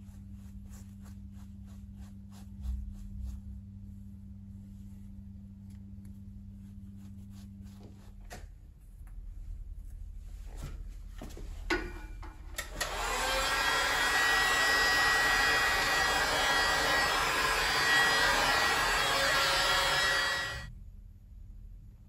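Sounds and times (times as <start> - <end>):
heat gun fan blowing: 11.7 - 20.7.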